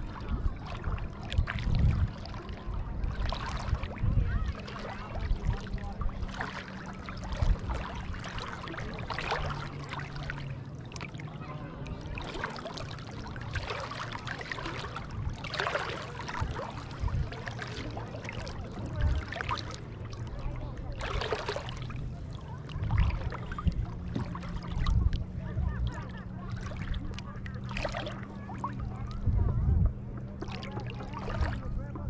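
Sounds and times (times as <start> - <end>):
seawater lapping and splashing: 0.0 - 32.0
low rumble: 12.8 - 32.0.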